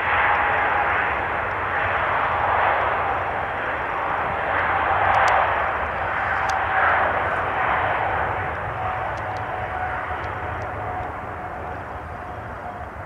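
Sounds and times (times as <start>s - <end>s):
jet engines passing: 0.0s - 13.0s.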